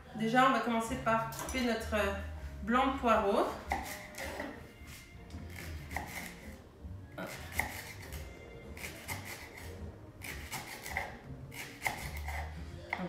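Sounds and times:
knife cutting on wooden board: 3.6s - 6.6s, 7.2s - 13.0s.

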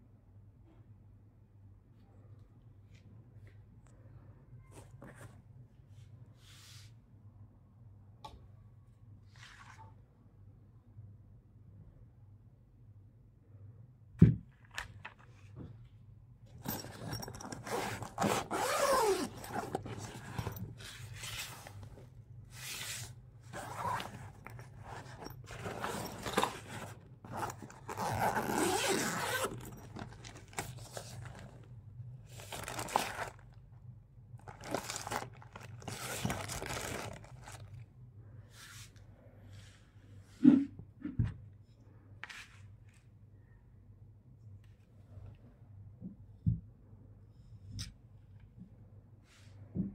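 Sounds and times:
zippers being pulled: 16.6s - 20.8s, 23.5s - 31.7s, 32.4s - 33.4s, 34.4s - 37.7s.

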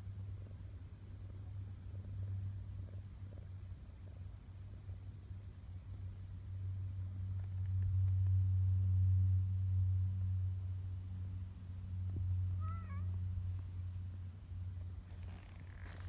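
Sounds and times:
cat meowing: 12.6s - 13.1s.

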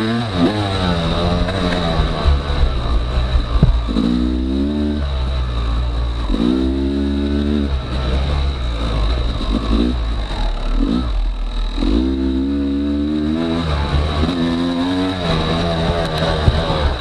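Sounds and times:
dirt bike engine revving: 0.0s - 17.0s
sharp knock: 3.5s - 4.0s.

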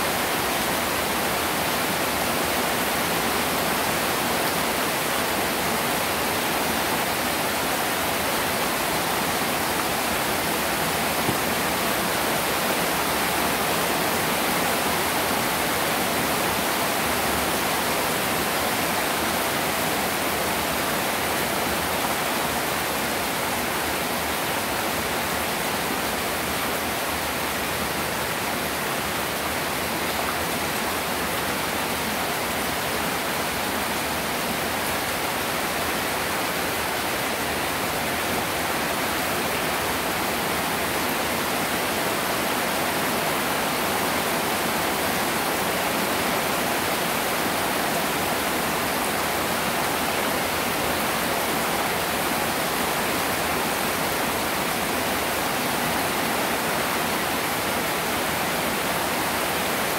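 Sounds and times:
heavy rain on water: 0.0s - 59.9s.

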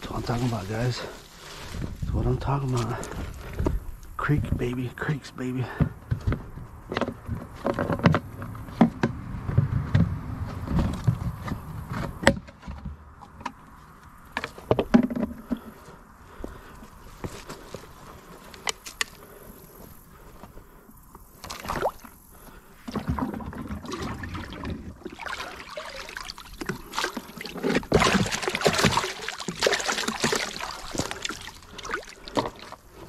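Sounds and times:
water gurgling in a filling bucket: 22.8s - 32.8s.

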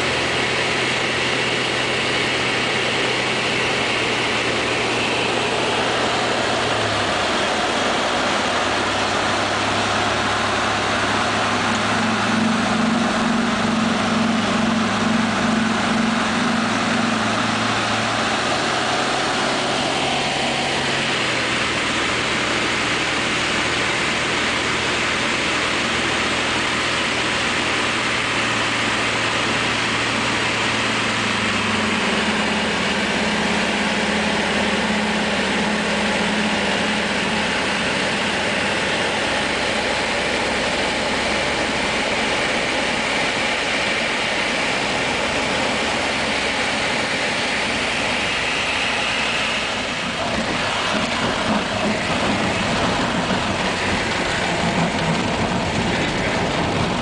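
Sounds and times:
light aircraft engine and propeller: 0.0s - 57.0s
wind roar: 49.6s - 57.0s.

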